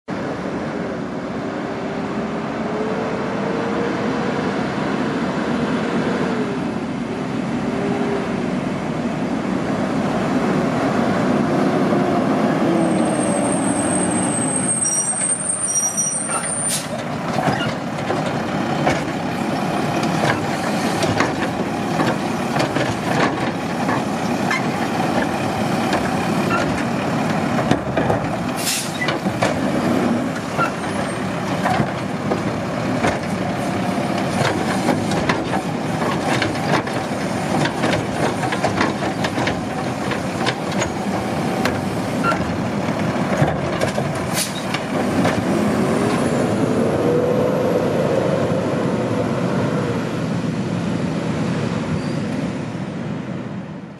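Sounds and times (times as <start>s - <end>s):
short hiss: 28.6s - 29.0s.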